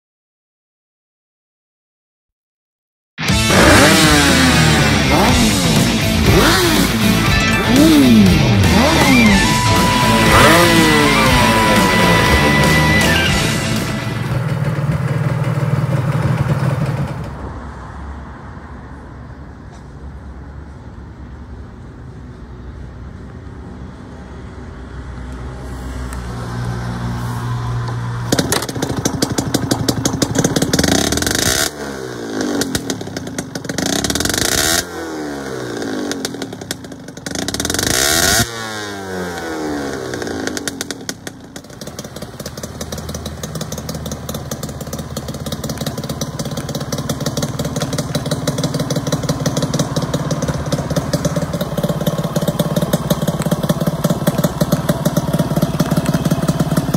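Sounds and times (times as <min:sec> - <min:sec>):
two-stroke motorcycle engine revving: 0:03.2 - 0:17.3, 0:28.2 - 0:56.9.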